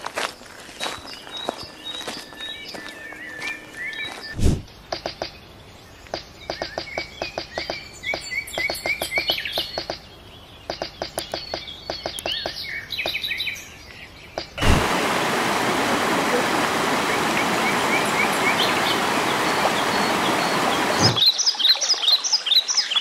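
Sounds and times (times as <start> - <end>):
bird chirping calls: 0.8 - 14.8, 16.8 - 23.0
woodpecker tapping: 4.8 - 5.4, 6.1 - 13.3
stream rushing over rocks: 14.6 - 23.0.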